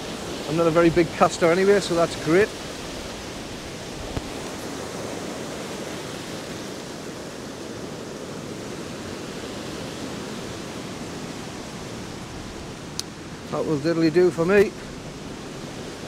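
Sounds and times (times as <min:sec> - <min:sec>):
surf breaking on beach: 0:00.0 - 0:16.0.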